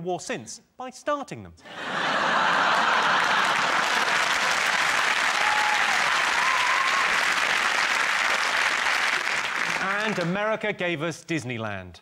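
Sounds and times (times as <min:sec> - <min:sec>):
audience applauding: 0:02.1 - 0:10.5.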